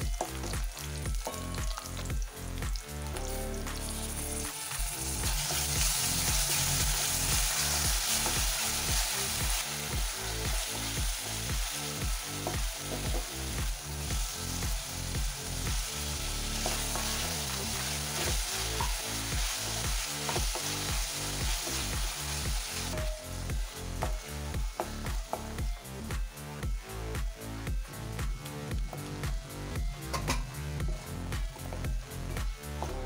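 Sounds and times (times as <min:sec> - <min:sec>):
vegetables sizzling in hot oil: 0:00.0 - 0:26.2
background music with steady beat: 0:00.0 - 0:33.0.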